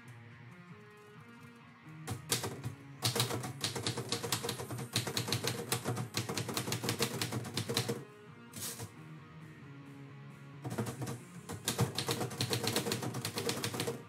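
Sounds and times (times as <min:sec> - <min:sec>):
manual typewriter typing: 0:02.1 - 0:08.0, 0:10.7 - 0:14.0.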